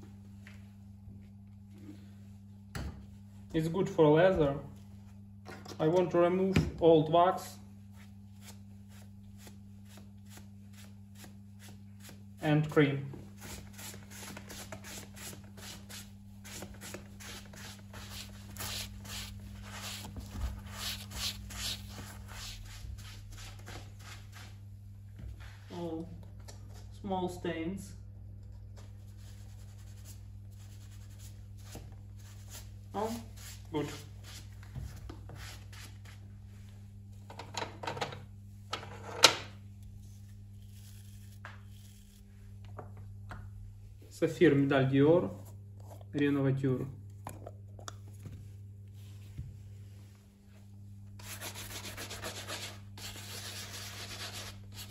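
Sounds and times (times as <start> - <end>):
steady low hum: 0.0 - 54.9
cloth rubbing leather shoe: 13.3 - 24.6.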